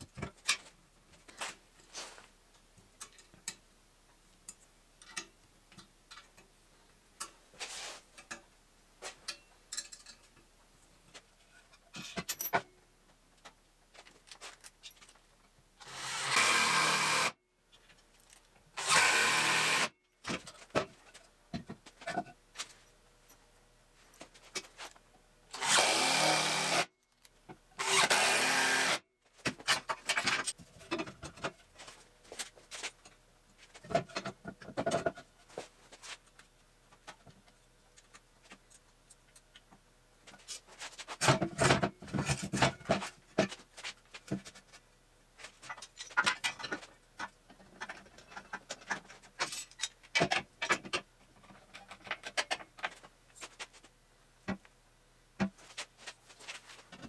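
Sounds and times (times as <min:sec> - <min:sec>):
cordless power tool bursts: 0:15.8 - 0:17.4, 0:18.8 - 0:19.9, 0:25.5 - 0:26.9, 0:27.8 - 0:29.0.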